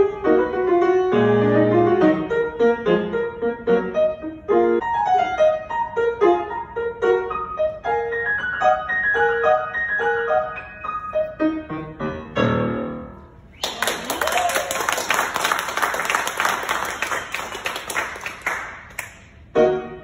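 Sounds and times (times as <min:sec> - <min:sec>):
grand piano playing: 0:00.0 - 0:13.5, 0:15.6 - 0:20.0
audience applause: 0:13.6 - 0:19.2.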